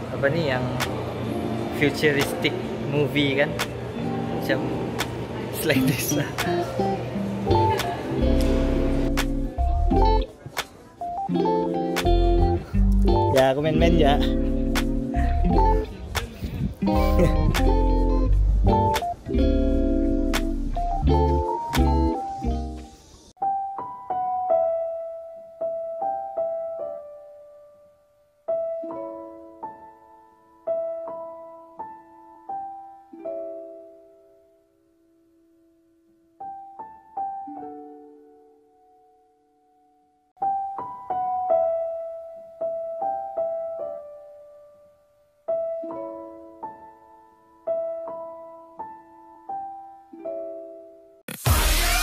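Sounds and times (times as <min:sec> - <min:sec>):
slow piano melody: 0:03.8 - 0:10.4, 0:11.0 - 0:16.0, 0:16.7 - 0:51.2
beat-driven music: 0:05.8 - 0:23.6, 0:51.3 - 0:52.0.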